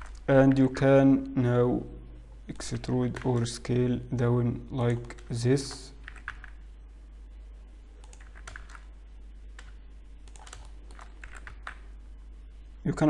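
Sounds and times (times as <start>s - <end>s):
steady low hum: 0.0s - 13.0s
computer keyboard key clicks: 8.0s - 8.8s, 10.3s - 11.8s.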